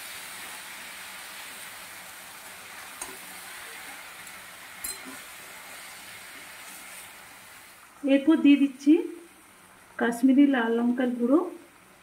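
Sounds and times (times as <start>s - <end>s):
vegetables sizzling in wok: 0.0s - 12.0s.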